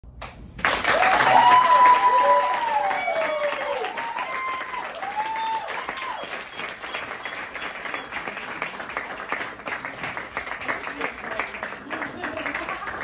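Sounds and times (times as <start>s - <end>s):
audience clapping: 0.1s - 13.0s
people whooping and cheering: 0.8s - 8.4s.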